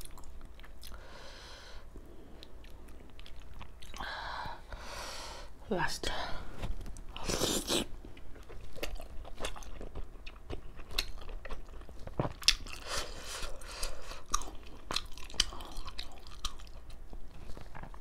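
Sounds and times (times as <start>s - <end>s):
mouth chewing food: 7.0s - 18.0s.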